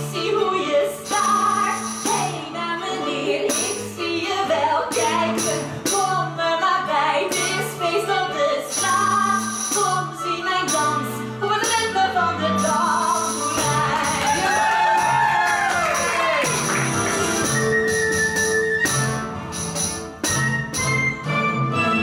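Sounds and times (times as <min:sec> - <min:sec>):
small band playing: 0:00.0 - 0:22.0
tambourine jingling: 0:01.1 - 0:02.4, 0:04.9 - 0:06.2, 0:08.7 - 0:10.1, 0:12.5 - 0:21.0.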